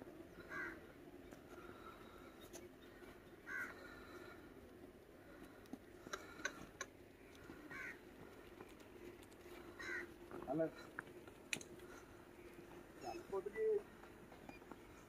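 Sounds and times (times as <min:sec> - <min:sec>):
steady low hum: 0:00.0 - 0:15.0
crow cawing faintly: 0:00.3 - 0:04.6, 0:05.2 - 0:10.8.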